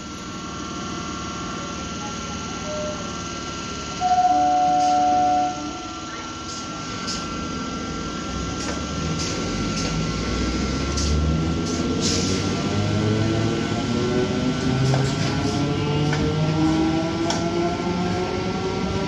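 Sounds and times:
train motor whine: 0.0 - 19.0
train horn: 4.0 - 6.0.

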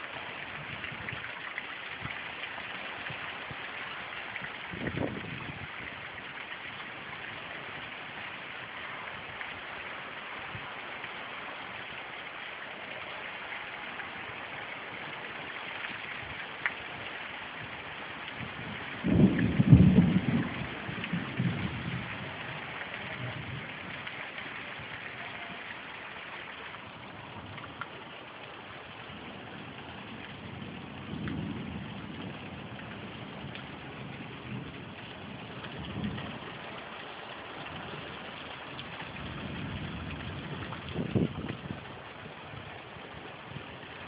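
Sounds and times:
rain falling: 0.0 - 44.0
thunder clap and rumble: 18.3 - 24.1, 29.2 - 36.9, 37.6 - 43.8.

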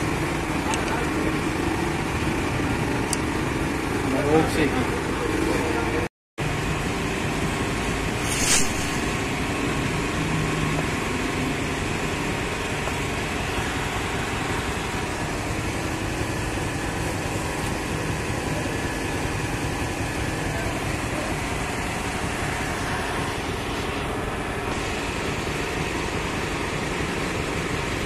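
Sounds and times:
mechanical hum and hiss: 0.0 - 28.0
short high hiss: 8.2 - 9.3.

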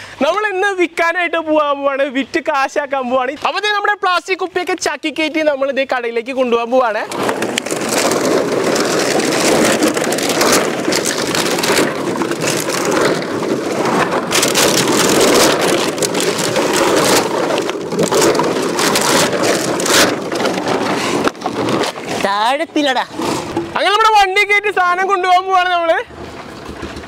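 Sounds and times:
plastic bottles crackling and clattering: 4.5 - 24.6, 26.1 - 27.0.

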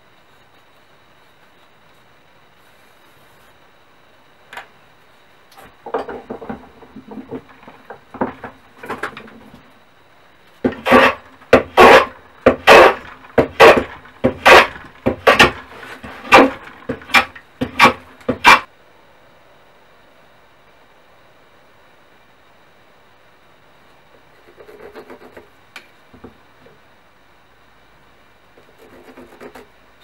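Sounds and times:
wood scraping and knocking: 5.6 - 9.7, 10.6 - 18.7
hand plane strokes on wood: 10.6 - 18.7, 28.6 - 29.7.

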